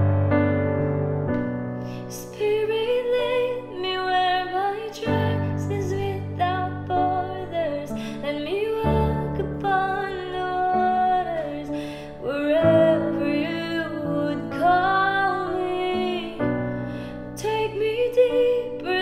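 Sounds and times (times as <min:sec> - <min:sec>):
woman singing slow melody: 0:01.9 - 0:19.0.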